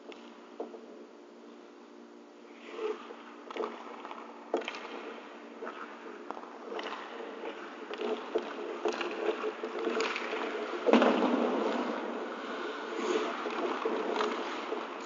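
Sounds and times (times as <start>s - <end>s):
steady hum: 0.0s - 15.0s
skates scraping ice: 2.6s - 15.0s
stick and puck clicks: 3.4s - 12.0s, 13.2s - 15.0s.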